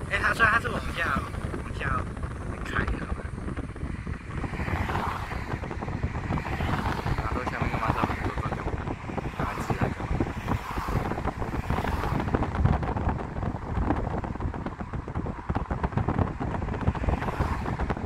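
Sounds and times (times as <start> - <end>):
car road noise: 0.0 - 18.0
wind buffeting microphone: 0.0 - 18.0.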